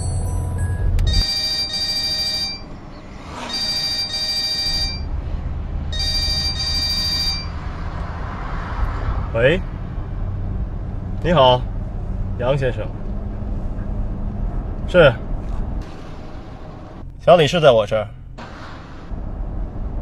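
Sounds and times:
mobile phone ringing: 0.0s - 5.1s, 5.9s - 7.6s.

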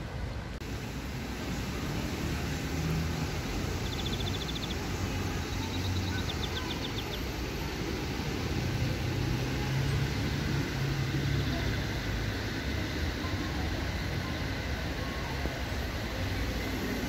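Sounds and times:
road traffic hum: 0.0s - 17.0s
bird trilling: 3.7s - 7.3s.

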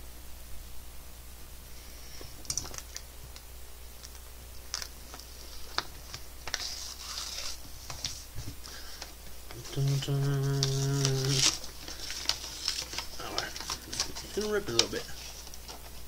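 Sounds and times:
fingers tearing paper envelope: 4.8s - 8.2s, 9.5s - 16.0s
paper rustling: 4.8s - 16.0s.

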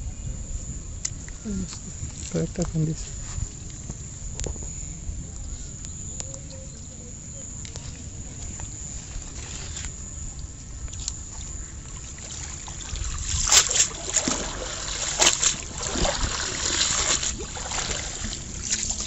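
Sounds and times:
net splashing in water: 12.0s - 19.0s
water trickling off net: 12.2s - 19.0s.

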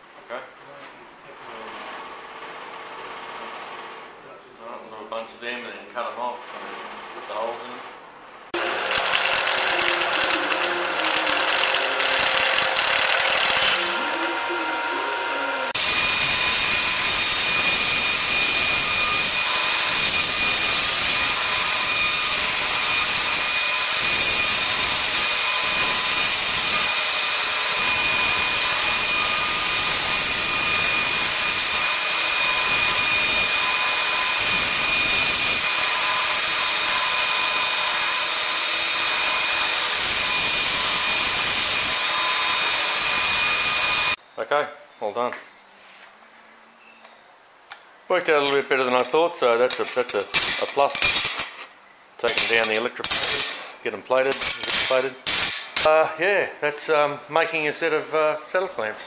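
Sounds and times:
belt grinding steel: 8.6s - 44.2s, 49.7s - 55.9s
belt sander whine: 8.6s - 44.2s.

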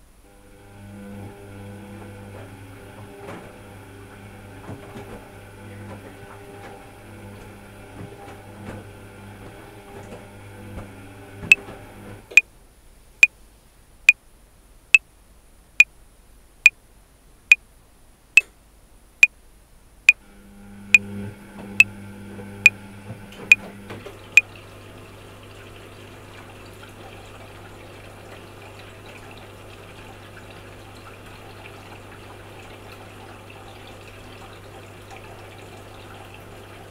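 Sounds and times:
washing machine motor hum: 0.3s - 12.4s, 20.1s - 36.9s.

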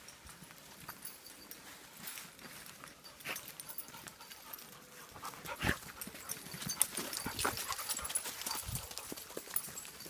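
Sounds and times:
footsteps crunching through dry leaves: 1.6s - 3.6s
dog panting: 2.9s - 9.7s.

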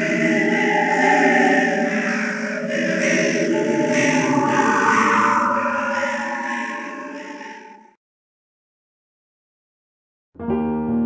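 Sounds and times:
eerie choir-like voices: 0.0s - 8.0s.

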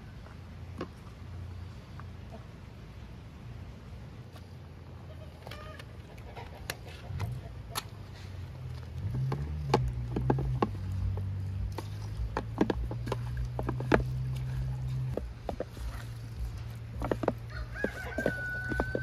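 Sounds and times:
low steady hum: 0.0s - 19.0s
chicken clucking: 5.2s - 7.9s
hands squelching raw chicken: 5.4s - 19.0s.

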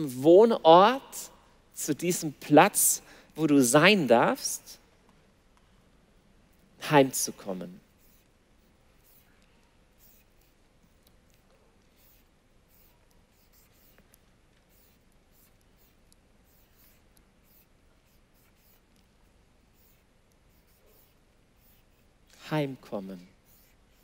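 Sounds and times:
marker pen scratching on board: 7.8s - 22.2s, 23.3s - 24.0s.

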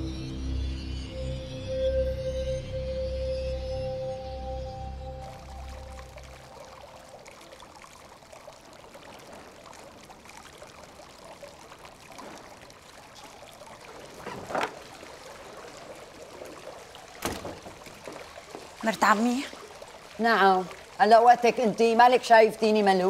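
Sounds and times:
fountain water trickling and splashing: 4.7s - 23.0s.

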